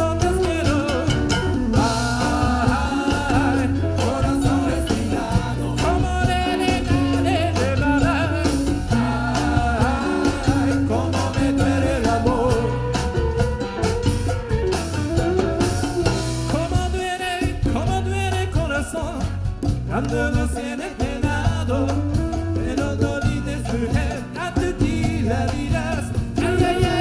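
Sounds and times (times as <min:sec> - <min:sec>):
congas: 0:00.0 - 0:27.0
drum kit: 0:00.0 - 0:27.0
rock band playing: 0:00.0 - 0:27.0
wavering lead melody: 0:00.6 - 0:16.7.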